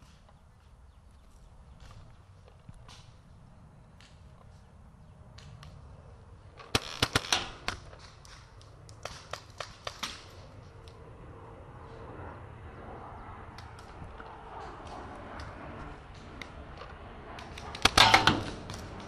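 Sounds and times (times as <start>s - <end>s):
paintball markers firing: 6.6s - 10.4s, 17.4s - 19.0s.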